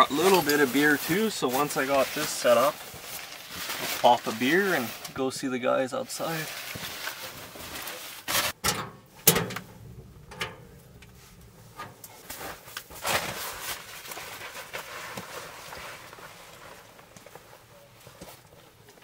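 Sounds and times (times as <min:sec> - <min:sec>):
rustling of fabric and gear: 0:00.0 - 0:08.6, 0:11.1 - 0:19.0
knocks and clatters: 0:08.3 - 0:12.8.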